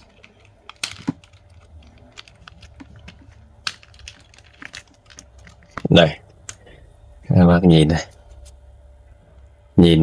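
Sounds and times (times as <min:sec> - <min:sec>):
plastic connectors clicking: 0:00.0 - 0:05.9
plastic rattles: 0:00.0 - 0:05.9.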